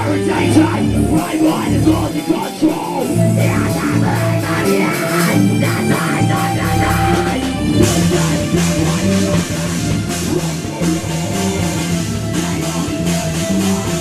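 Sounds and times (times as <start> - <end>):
metal band playing live: 0.0 - 14.0.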